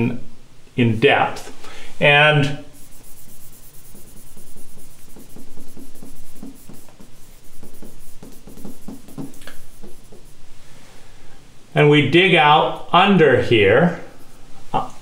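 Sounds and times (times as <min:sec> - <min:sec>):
palm squeaking on glass: 0:02.8 - 0:10.4.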